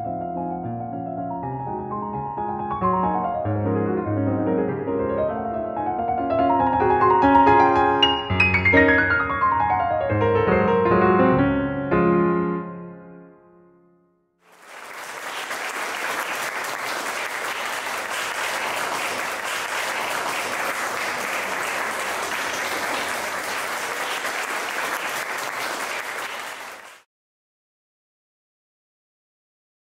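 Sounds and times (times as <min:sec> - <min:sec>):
audience applauding: 0:14.5 - 0:27.1.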